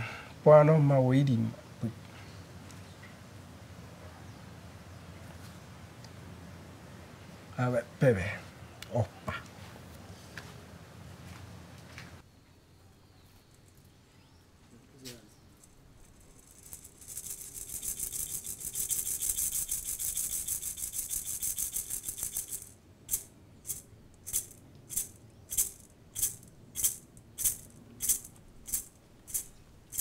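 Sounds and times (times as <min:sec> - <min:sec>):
hand rattle shaking: 0:15.6 - 0:30.0.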